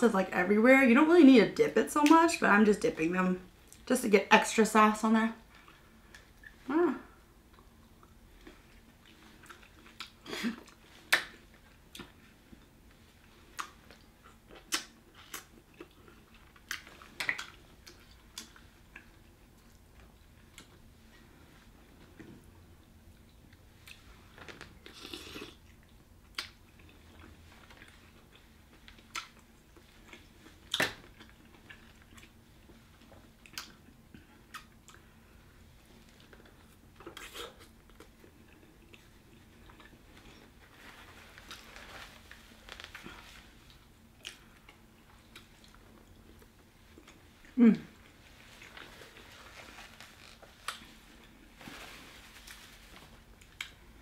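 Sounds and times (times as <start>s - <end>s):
chewing and mouth smacks: 7.5s - 12.7s, 13.5s - 20.8s, 23.1s - 35.2s, 36.1s - 40.5s, 42.9s - 47.6s, 50.6s - 51.3s.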